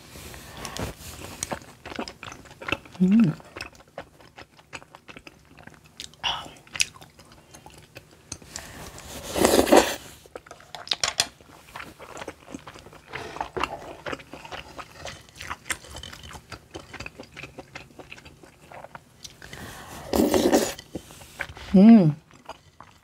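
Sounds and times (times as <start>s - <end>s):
wet chewing: 0.6s - 23.0s
loud slurp: 9.2s - 10.1s.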